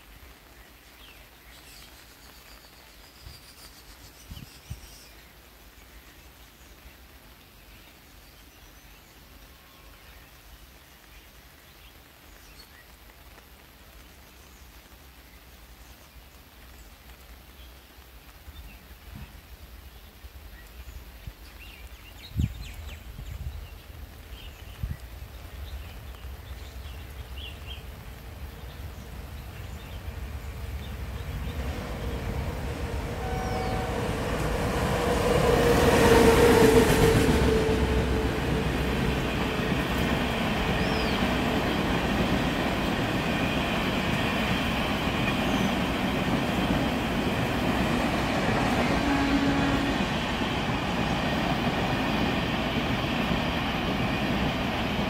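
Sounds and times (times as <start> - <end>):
electric locomotive passing: 25.2 - 55.0.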